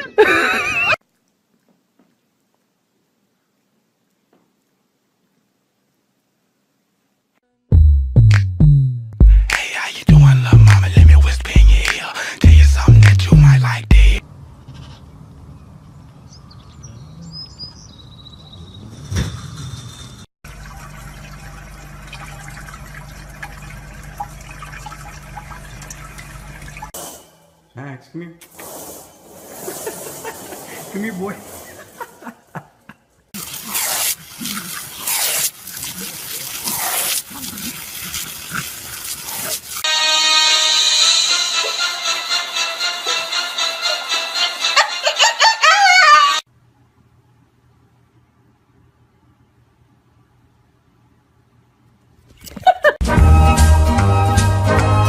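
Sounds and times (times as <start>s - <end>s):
music: 7.7s - 14.2s, 39.9s - 45.4s, 53.0s - 55.0s
short voice-like sounds: 9.3s - 14.2s
hose spraying water: 28.4s - 31.9s, 33.4s - 39.9s.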